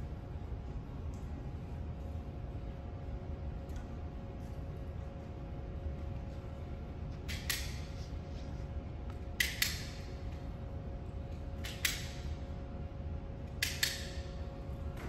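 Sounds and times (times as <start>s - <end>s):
steady background hum: 0.0s - 15.0s
hand tool clicks on wire: 7.2s - 7.9s, 9.4s - 10.1s, 11.6s - 12.3s, 13.5s - 14.4s.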